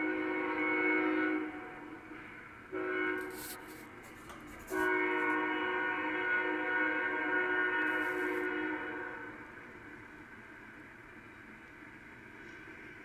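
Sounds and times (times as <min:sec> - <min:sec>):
locomotive air horn blasts: 0:00.0 - 0:09.5.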